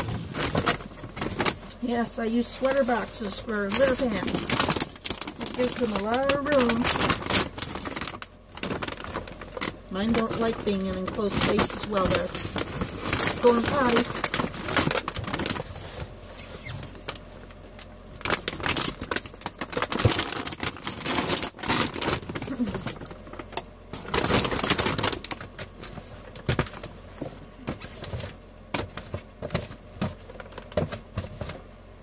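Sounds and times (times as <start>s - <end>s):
plastic bag crinkling: 0.0s - 31.6s
cat litter pouring and rustling: 0.0s - 31.7s.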